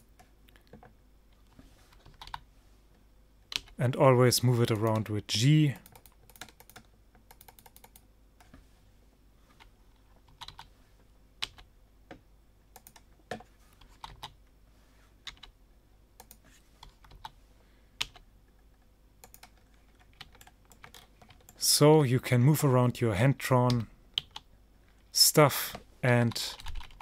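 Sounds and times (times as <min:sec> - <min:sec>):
keyboard and mouse clicks: 0:05.8 - 0:08.6, 0:11.4 - 0:14.4, 0:16.2 - 0:17.4, 0:18.8 - 0:21.6.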